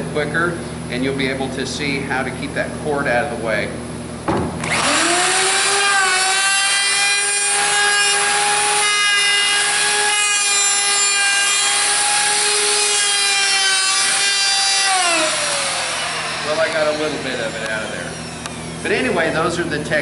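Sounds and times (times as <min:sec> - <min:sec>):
wood router high whine: 0:04.6 - 0:19.5.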